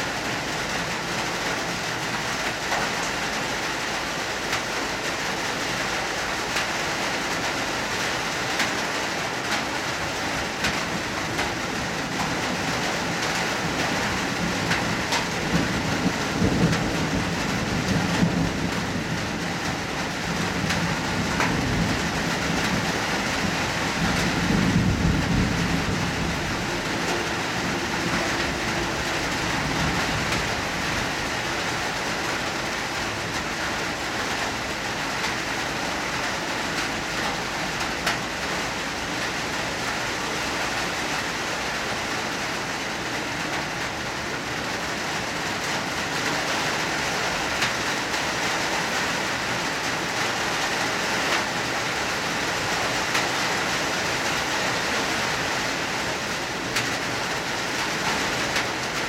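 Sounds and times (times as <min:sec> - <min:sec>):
hard rain hissing: 0:00.0 - 0:59.0
rain drop taps: 0:10.6 - 0:11.6, 0:21.4 - 0:21.6, 0:37.8 - 0:38.2.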